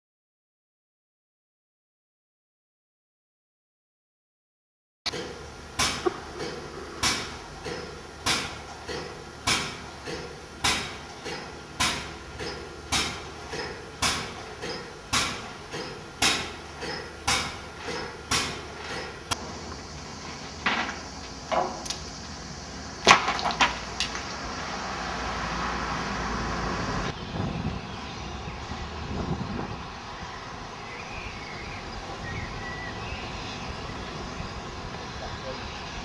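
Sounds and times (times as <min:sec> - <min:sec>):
hammer striking metal: 0:05.1 - 0:19.4.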